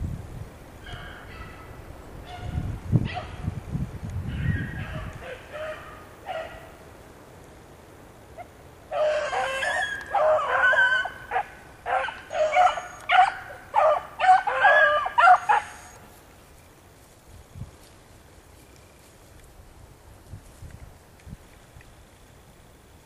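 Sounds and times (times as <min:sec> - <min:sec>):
dogs barking and yelping: 0:04.4 - 0:06.7, 0:08.4 - 0:16.0.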